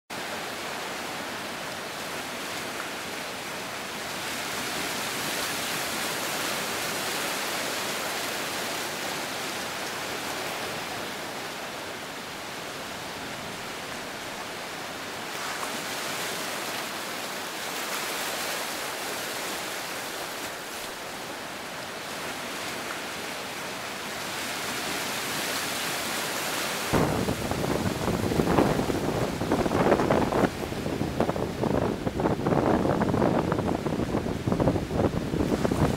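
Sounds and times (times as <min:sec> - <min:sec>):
waves washing onto beach: 0:00.1 - 0:35.9
wind buffeting microphone: 0:26.9 - 0:35.9.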